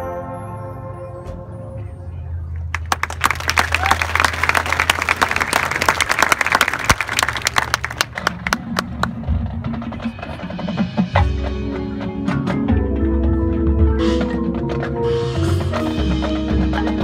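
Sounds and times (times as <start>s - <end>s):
marching band chords: 7.7s - 17.0s.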